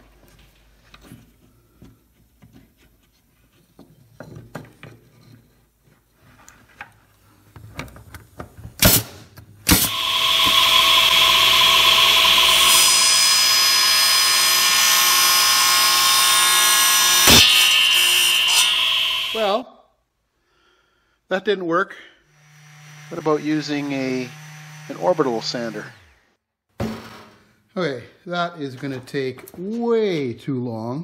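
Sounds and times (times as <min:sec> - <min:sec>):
saw motor whining: 0:09.7 - 0:19.6, 0:22.3 - 0:26.2.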